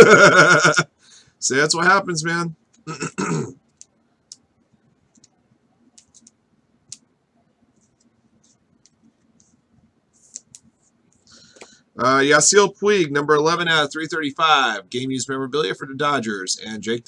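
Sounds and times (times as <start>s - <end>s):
trading cards clicking and sliding: 10.2s - 11.8s.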